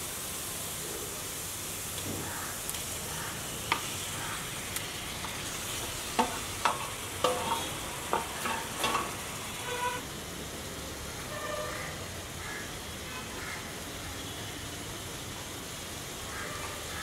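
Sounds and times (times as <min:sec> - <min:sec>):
food sizzling in a hot pan: 0:00.0 - 0:17.0
metal spoon scraping a pan: 0:05.2 - 0:10.0.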